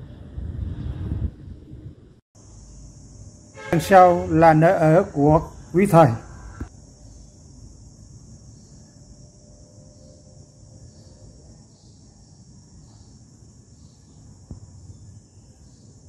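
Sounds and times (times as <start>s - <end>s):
high-pitched insect hum: 2.4s - 16.0s.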